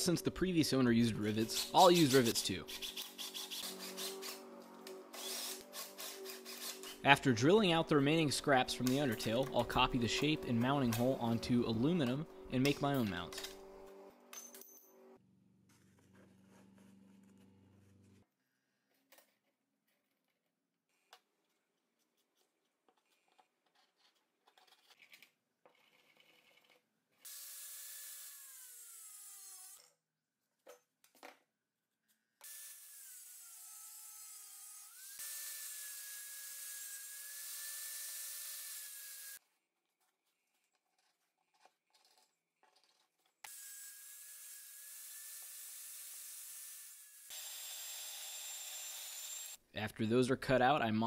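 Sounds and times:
angle grinder cutting metal: 1.0s - 13.7s, 27.3s - 29.9s, 32.4s - 39.4s, 43.5s - 49.6s.

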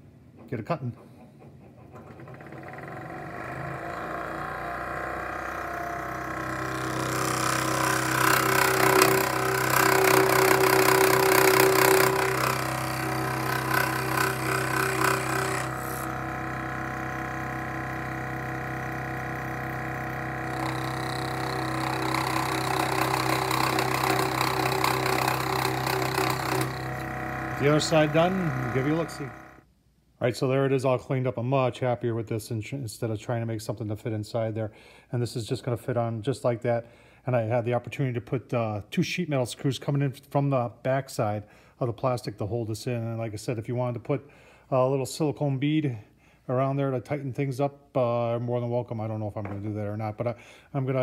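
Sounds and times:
scroll saw motor hum: 1.9s - 29.6s
saw blade rasping in wood: 2.1s - 29.6s.

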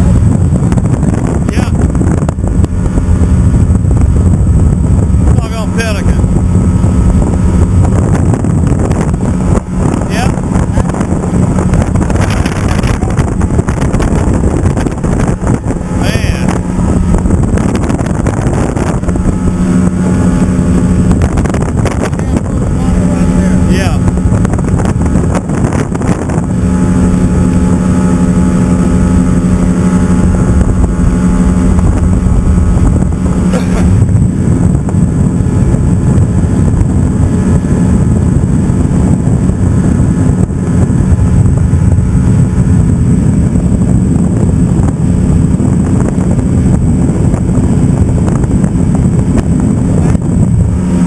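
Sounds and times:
motorboat engine running: 0.0s - 51.0s
wind buffeting microphone: 0.0s - 51.0s
rough rushing water noise: 8.6s - 36.0s.

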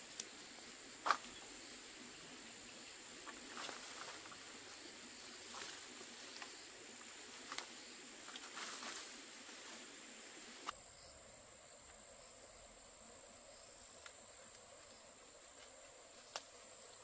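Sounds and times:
soft rustle: 2.4s - 10.8s.

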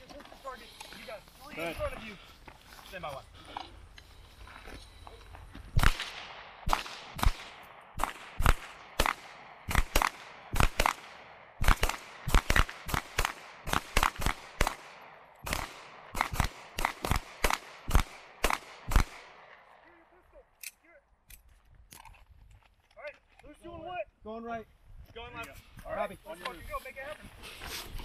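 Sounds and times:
pistol shots with echo: 5.8s - 19.6s.

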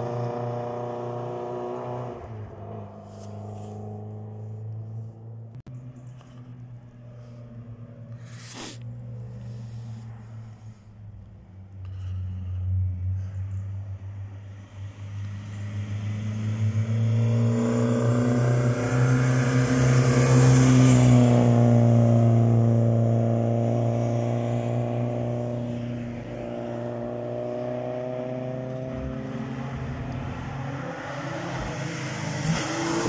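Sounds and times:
rally car passing at speed: 0.0s - 6.3s, 14.1s - 33.0s.

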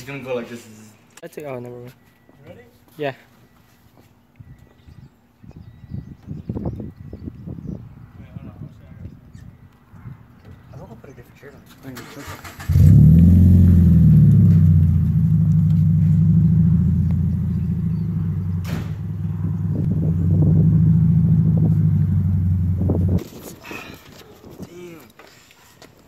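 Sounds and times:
car engine starting and idling: 12.0s - 23.2s.

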